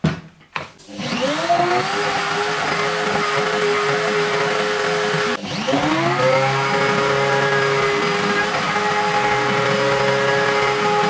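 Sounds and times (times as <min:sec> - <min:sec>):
knock: 0:00.0 - 0:00.7
router spindle motor whining: 0:00.8 - 0:11.0.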